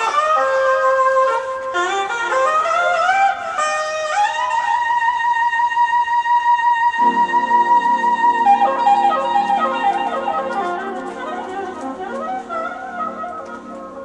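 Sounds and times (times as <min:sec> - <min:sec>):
saxophone melody: 0:00.0 - 0:05.2, 0:06.9 - 0:14.0
pulsing accompaniment: 0:07.0 - 0:14.0.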